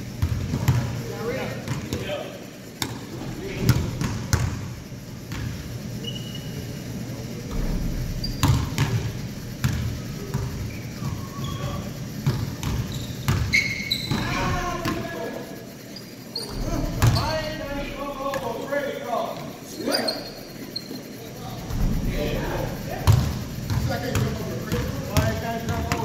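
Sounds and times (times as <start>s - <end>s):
sneaker squeaks: 0.2s - 26.0s
basketball bouncing on wooden floor: 3.6s - 4.7s, 7.5s - 15.0s, 16.5s - 17.3s, 23.0s - 26.0s
players calling out: 8.2s - 26.0s.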